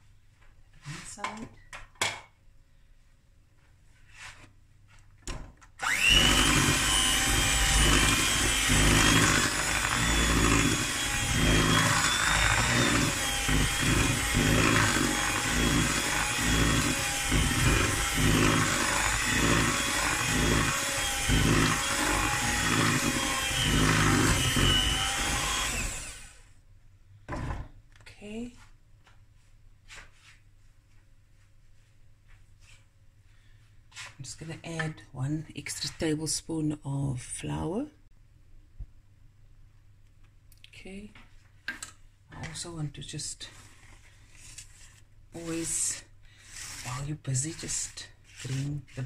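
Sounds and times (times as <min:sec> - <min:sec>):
beaters churning thick batter: 0:05.8 - 0:26.2
electric hand mixer whining: 0:05.8 - 0:26.4.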